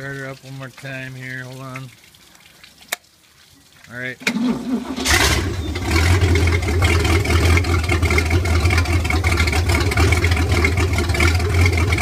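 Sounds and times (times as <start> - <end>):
boat engine starting and idling: 4.2 - 12.0.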